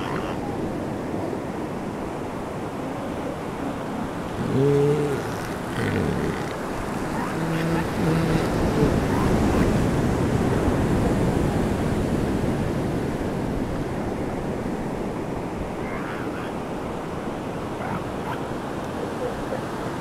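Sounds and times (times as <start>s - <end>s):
elephant seal call: 0.0s - 0.5s, 4.3s - 9.7s, 15.8s - 16.6s.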